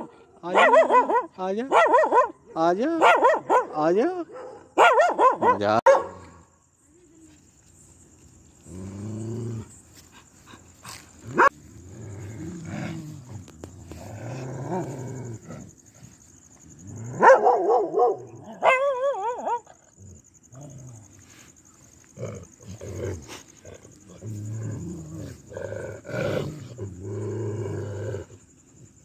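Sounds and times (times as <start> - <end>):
dog yelping: 0.0 - 2.4, 3.0 - 3.7, 4.8 - 6.1, 17.2 - 19.7
dog barking: 0.0 - 6.3, 11.3 - 11.6, 17.1 - 19.7
dog growling: 8.7 - 9.7, 11.2 - 15.7.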